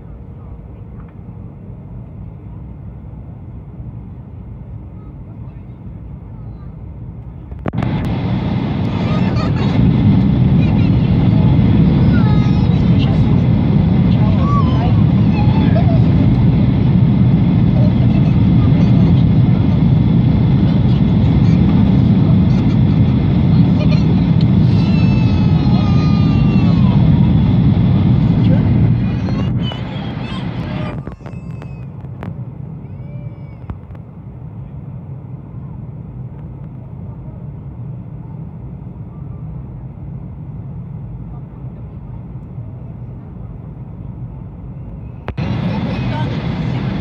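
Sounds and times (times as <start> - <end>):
aircraft cabin engine rumble: 0.0 - 47.0
airflow over fuselage: 0.0 - 47.0
air rushing past fuselage: 7.7 - 31.0.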